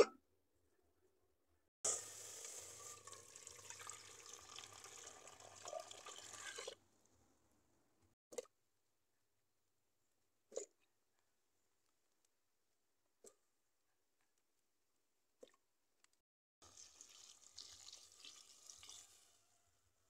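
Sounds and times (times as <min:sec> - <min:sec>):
liquid pouring into metal pot: 0:01.9 - 0:06.8, 0:16.6 - 0:19.3.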